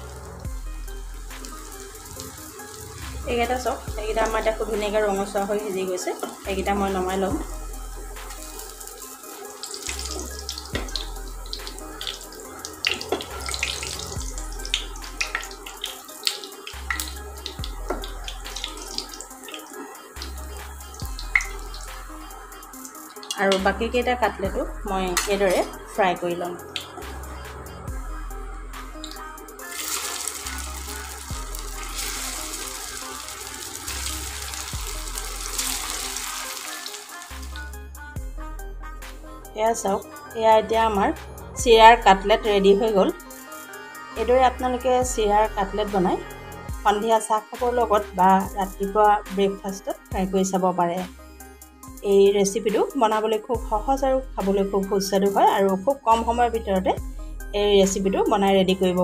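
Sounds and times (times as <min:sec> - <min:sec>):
background music with steady bass: 0:00.0 - 0:59.0
food sizzling in oil: 0:00.6 - 0:23.6, 0:29.0 - 0:37.7.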